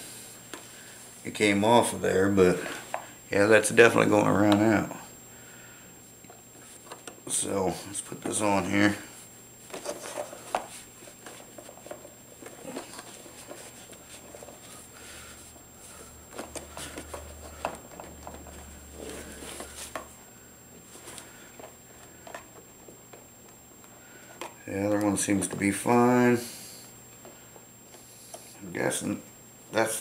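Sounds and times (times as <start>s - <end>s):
hands handling plastic parts: 15.8s - 20.1s.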